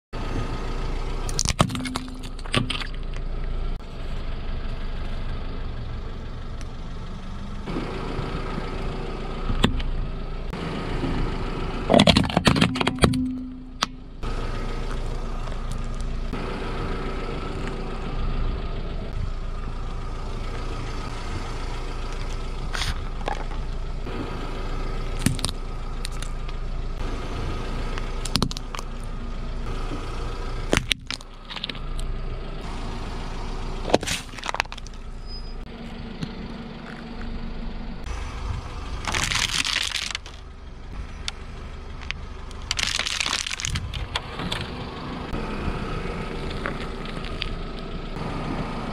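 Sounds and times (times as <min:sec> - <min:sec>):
car engine idling: 0:00.2 - 0:48.9
plastic cracking under tyre: 0:01.3 - 0:03.2, 0:11.9 - 0:13.0, 0:25.1 - 0:26.6, 0:28.0 - 0:29.1, 0:30.7 - 0:32.0, 0:33.9 - 0:35.0, 0:39.0 - 0:40.5, 0:42.0 - 0:44.7, 0:46.3 - 0:47.8.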